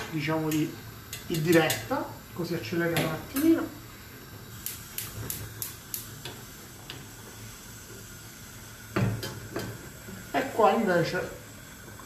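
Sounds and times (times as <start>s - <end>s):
gas igniter clicking: 0.0s - 1.9s, 4.6s - 7.0s
faint gas hiss: 0.0s - 12.0s
pan knocking on burner grate: 8.9s - 9.8s.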